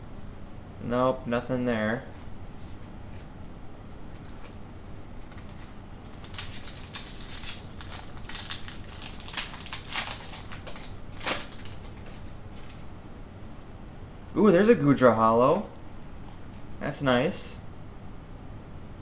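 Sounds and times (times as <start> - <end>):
foil wrapper crinkling and tearing: 5.2 - 12.8.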